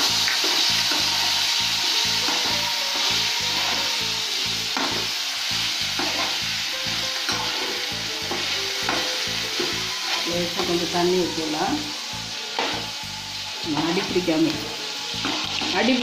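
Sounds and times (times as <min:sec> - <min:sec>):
food sizzling in oil: 0:00.0 - 0:16.0
spatula scraping pan: 0:02.2 - 0:05.1.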